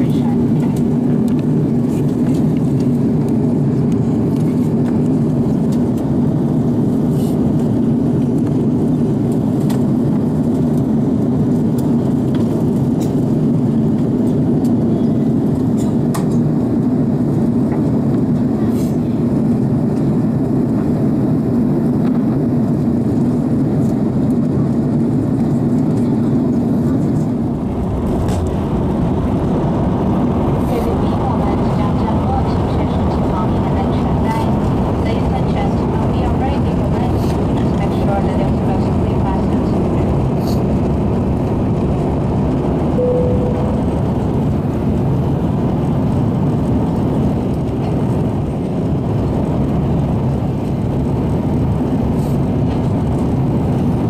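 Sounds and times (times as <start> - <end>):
jet engines droning: 0.0 - 54.0
rushing airflow: 26.6 - 37.8, 38.5 - 47.3.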